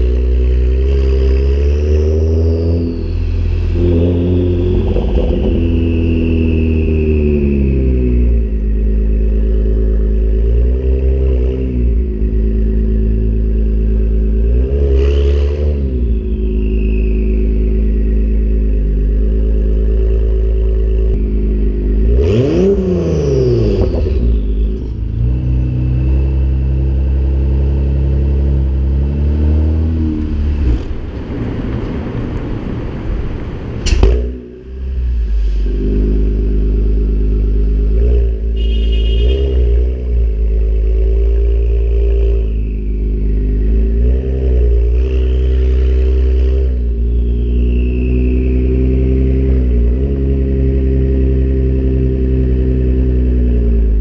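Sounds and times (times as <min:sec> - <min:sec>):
car engine exhaust note: 0:00.0 - 0:54.0
sharp crack: 0:33.8 - 0:34.4.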